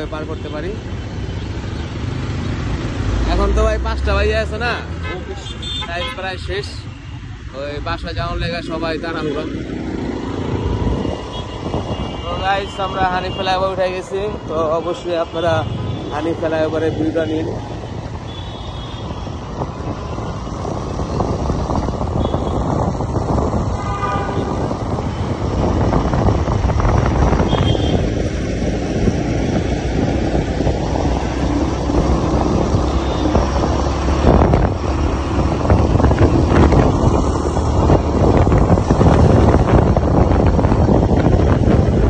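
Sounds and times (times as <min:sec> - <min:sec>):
motorcycle riding at speed: 0:00.0 - 0:42.0
wind on microphone: 0:09.8 - 0:13.4, 0:18.9 - 0:42.0.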